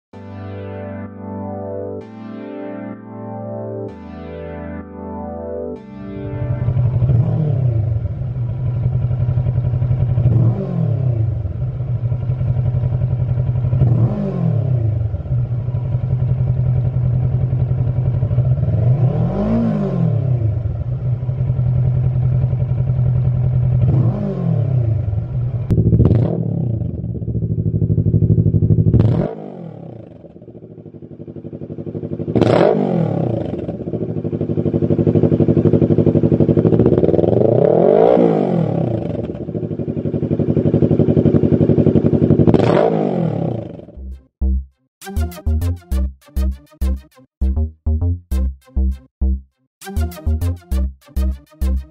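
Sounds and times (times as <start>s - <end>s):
motorcycle engine idling and revving: 6.3s - 44.6s.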